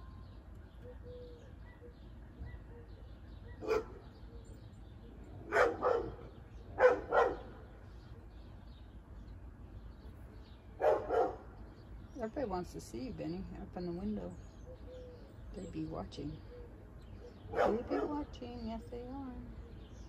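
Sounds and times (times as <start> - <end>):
dog barking: 3.5 - 4.0, 5.5 - 7.6, 10.8 - 11.5, 17.5 - 18.3.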